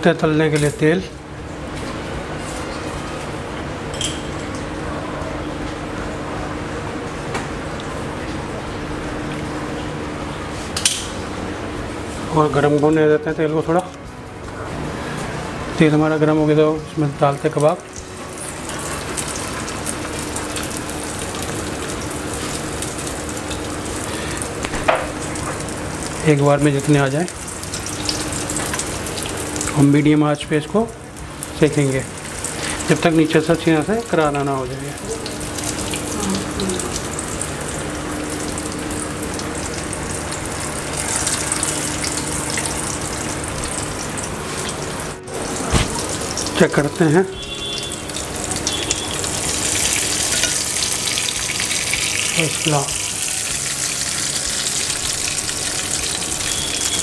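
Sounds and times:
kebab sizzling in hot oil: 0:14.3 - 0:57.0.

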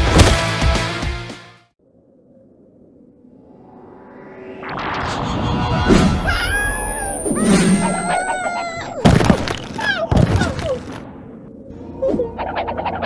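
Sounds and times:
thuds and crashes: 0:00.0 - 0:00.6, 0:09.0 - 0:11.0
high falling whistle: 0:03.0 - 0:09.0
cartoon yelling cries: 0:06.3 - 0:09.1.

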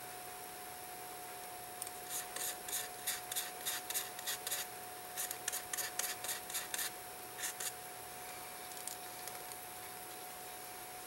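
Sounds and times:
screwdriver scratching steel part: 0:02.0 - 0:07.8.

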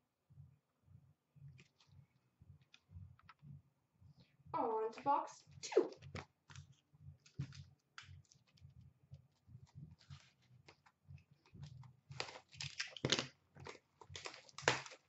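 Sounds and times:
cardboard and wrapper rustling: 0:06.1 - 0:07.6, 0:09.9 - 0:15.0.

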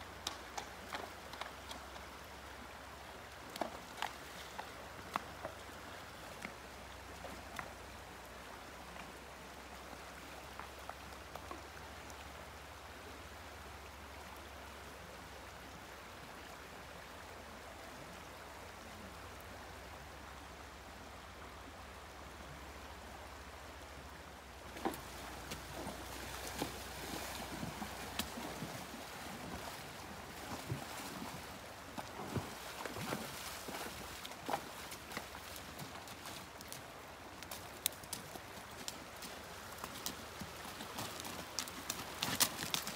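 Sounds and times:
hooves splashing through water: 0:00.0 - 0:12.1, 0:24.6 - 0:42.9
creek water running: 0:00.0 - 0:42.9.

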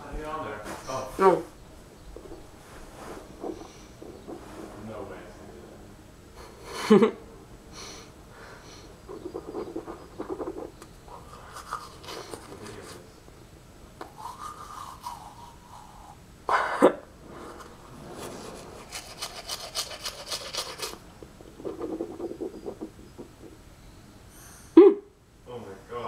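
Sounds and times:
close rasping and rubbing: 0:14.2 - 0:16.1, 0:17.3 - 0:23.6
loud scrape or knock: 0:17.2 - 0:20.1
rapid scratchy ticks: 0:18.9 - 0:23.6.

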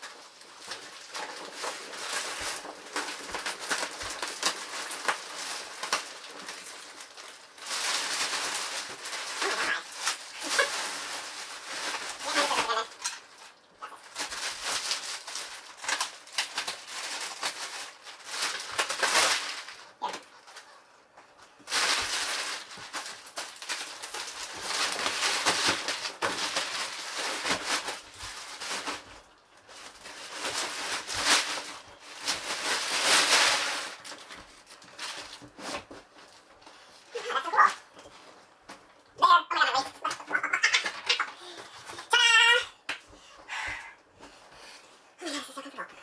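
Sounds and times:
plastic wrap crinkling: 0:00.0 - 0:46.0.

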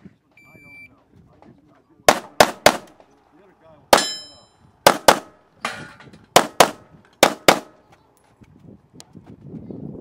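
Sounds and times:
steel target ringing clang: 0:03.9 - 0:04.6.

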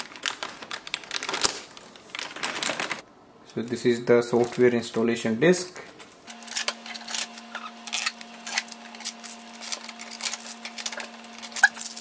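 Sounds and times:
tape peeling off plastic: 0:06.3 - 0:12.0.

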